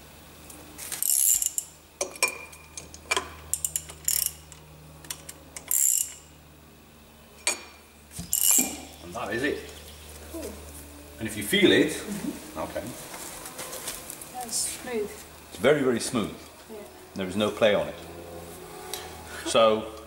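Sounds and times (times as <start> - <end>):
ratchet clicking: 1.0 - 2.2, 2.8 - 6.3, 8.3 - 8.8
metal tools clinking: 8.3 - 8.9.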